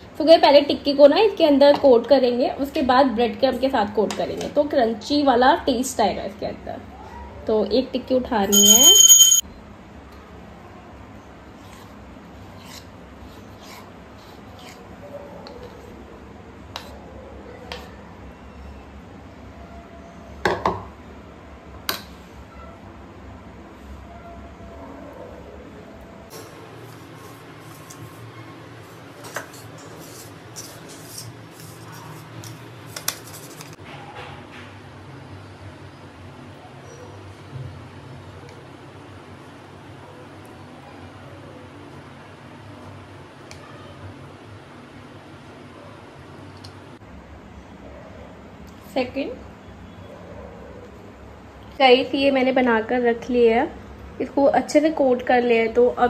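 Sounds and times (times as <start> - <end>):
breadcrumbs rustling and scraping: 26.8 - 33.8.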